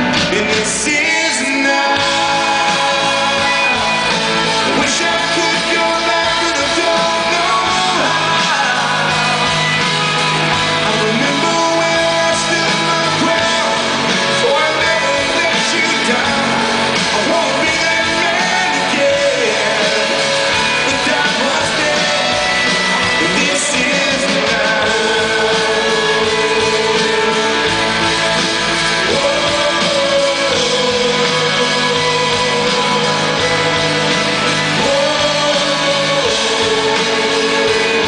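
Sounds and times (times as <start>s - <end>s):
man singing lead: 0.0s - 38.0s
rock band playing: 0.0s - 38.0s.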